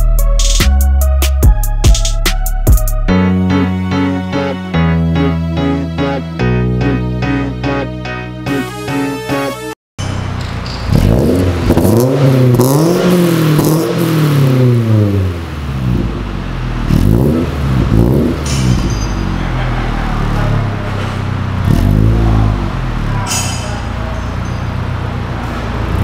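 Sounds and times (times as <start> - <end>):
car engine revving: 10.0 - 26.0.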